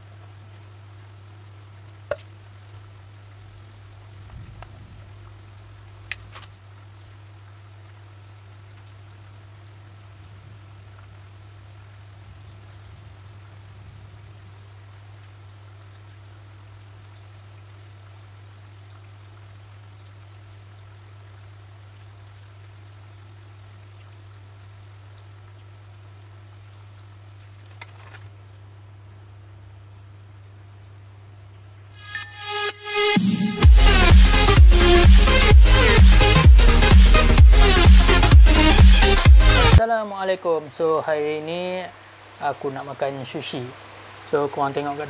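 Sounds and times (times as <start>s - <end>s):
background hiss: 24.4s - 45.0s
low hum: 31.7s - 39.8s
steady low hum: 33.2s - 45.0s.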